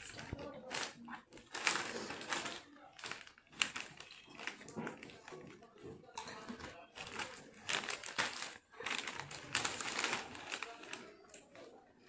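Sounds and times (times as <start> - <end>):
plastic chip packet crinkling: 0.0 - 11.8.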